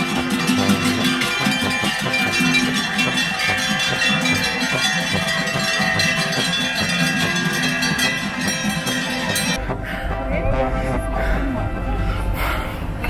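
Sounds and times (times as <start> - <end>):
cowbells clanging: 0.0 - 9.8.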